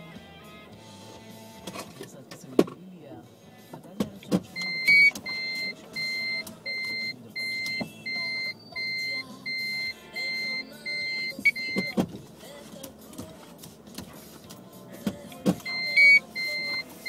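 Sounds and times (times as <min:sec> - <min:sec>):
electronic high beeps: 0:04.6 - 0:12.0, 0:15.6 - 0:17.0.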